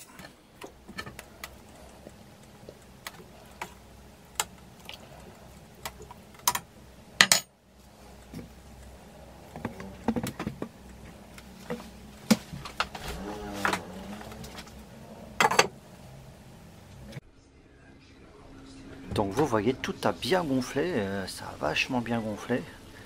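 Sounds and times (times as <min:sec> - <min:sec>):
faint low hum: 0:00.0 - 0:23.0.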